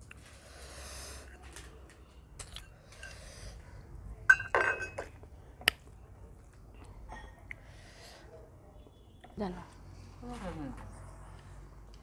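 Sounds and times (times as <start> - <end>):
metal bowl clinking on plate: 4.3 - 5.2.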